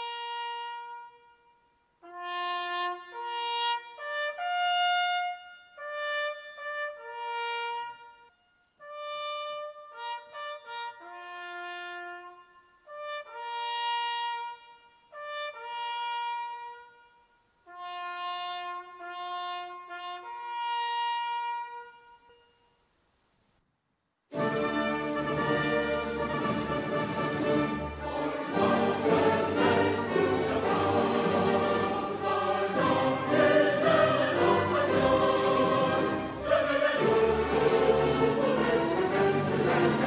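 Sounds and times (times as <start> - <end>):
solo trumpet long notes: 0.0 - 22.8.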